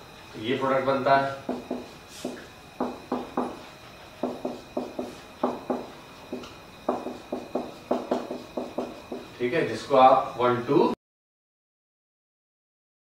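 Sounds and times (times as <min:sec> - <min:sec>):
marker writing on whiteboard: 0:01.5 - 0:09.3.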